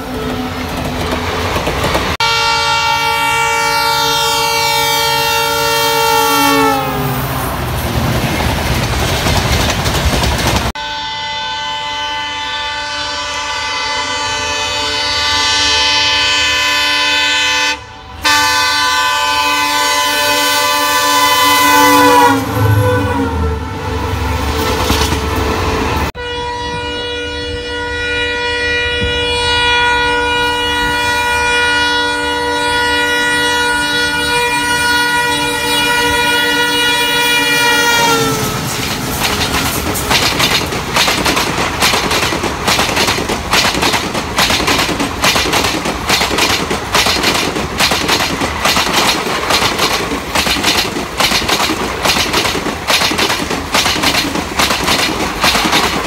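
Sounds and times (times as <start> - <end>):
train rumble and wheel clatter: 0.0 - 12.0, 14.2 - 26.8, 28.0 - 56.0
locomotive horn blasts: 2.2 - 7.4, 10.8 - 39.9.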